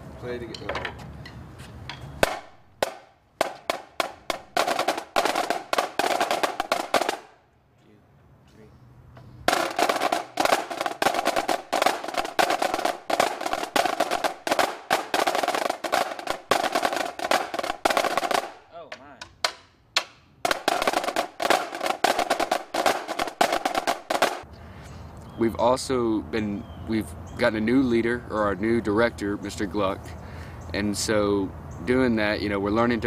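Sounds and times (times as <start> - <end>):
marching snare drums playing rolls: 2.2 - 7.4, 9.5 - 24.4.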